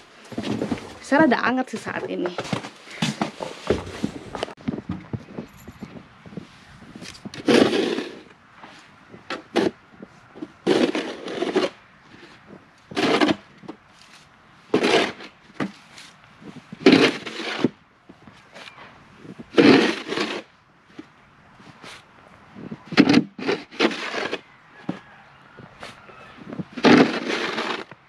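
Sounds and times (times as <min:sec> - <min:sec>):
snow shovel scraping pavement: 0:00.0 - 0:04.5, 0:06.2 - 0:25.2, 0:25.8 - 0:28.0.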